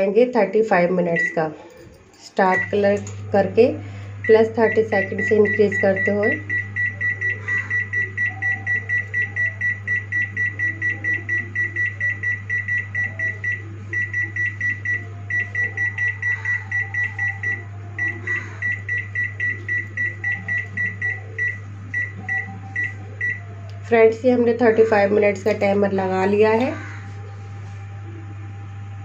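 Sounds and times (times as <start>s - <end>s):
steady low hum: 0.0s - 29.0s
microwave keypad beeping: 1.1s - 1.4s, 2.4s - 3.0s, 4.1s - 23.4s.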